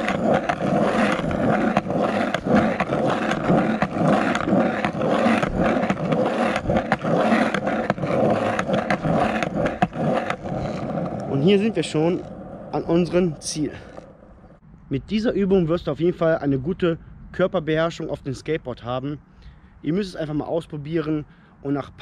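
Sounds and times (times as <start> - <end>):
skateboard wheels rolling on asphalt: 0.0 - 14.6.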